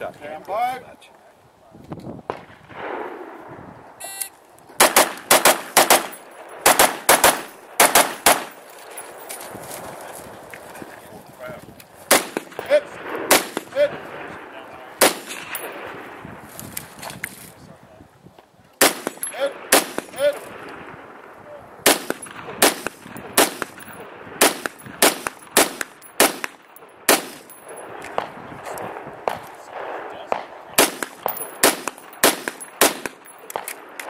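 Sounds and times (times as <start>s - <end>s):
rifle shots: 2.3s - 3.5s, 4.8s - 9.3s, 12.0s - 16.2s, 18.8s - 34.0s
faint short pings: 4.0s - 4.4s.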